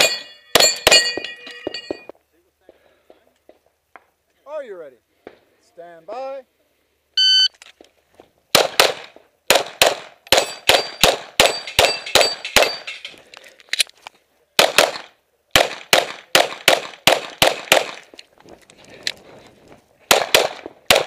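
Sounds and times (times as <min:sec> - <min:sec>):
rapid pistol shots: 0:08.5 - 0:12.9, 0:14.6 - 0:18.1, 0:20.1 - 0:21.0.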